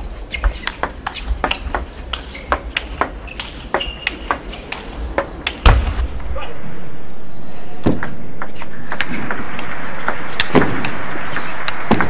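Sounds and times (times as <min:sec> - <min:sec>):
brief squeak: 0:03.3 - 0:04.2.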